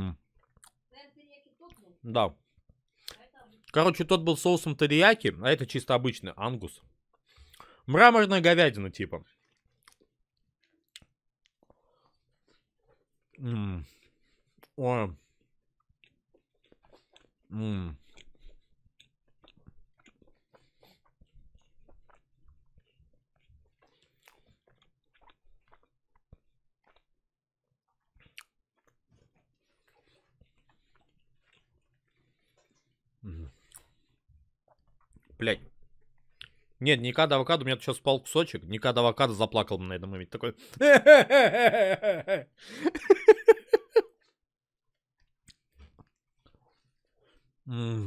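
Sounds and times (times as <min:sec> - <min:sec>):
person chewing food: 0:00.2 - 0:00.8, 0:07.1 - 0:07.8, 0:09.2 - 0:36.8, 0:40.7 - 0:47.6
mouth sounds biting food: 0:16.0 - 0:27.0
man laughing hard: 0:40.8 - 0:44.0.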